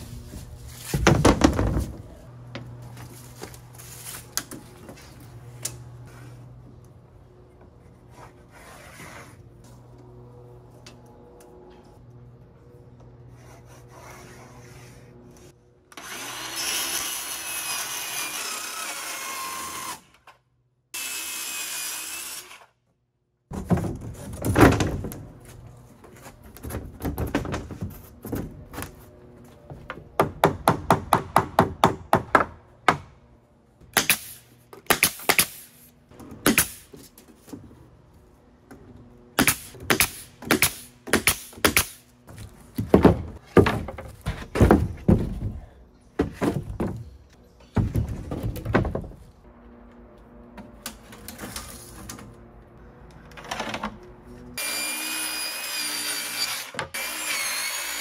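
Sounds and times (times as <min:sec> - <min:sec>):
pneumatic nailer firing: 0:33.9 - 0:35.8, 0:36.4 - 0:37.0, 0:39.4 - 0:42.0
circular saw cutting: 0:54.6 - 0:58.0.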